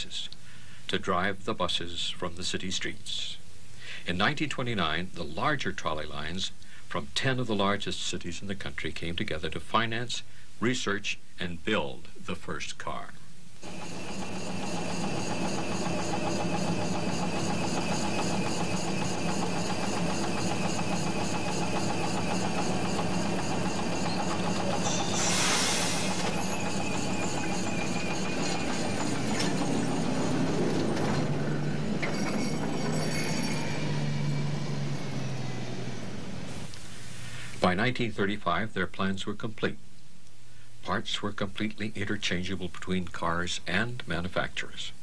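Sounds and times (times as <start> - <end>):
streetcar running hum: 13.6 - 37.3
short hiss: 25.0 - 26.5, 36.5 - 37.6.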